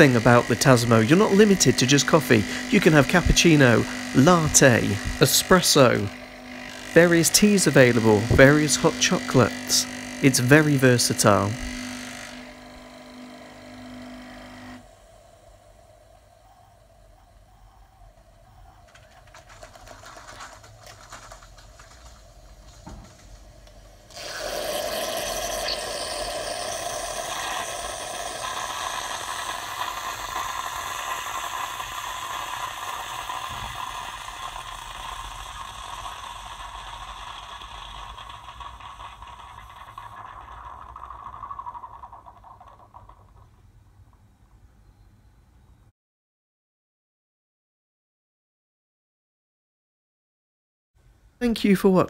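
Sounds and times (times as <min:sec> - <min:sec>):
coffee machine trickling: 0:00.0 - 0:13.0, 0:18.0 - 0:43.6
coffee machine pump running: 0:00.0 - 0:43.6.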